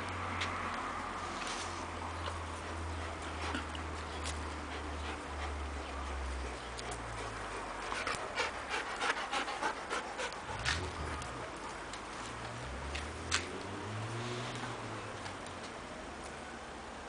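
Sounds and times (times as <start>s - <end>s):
dog panting: 2.4s - 11.7s.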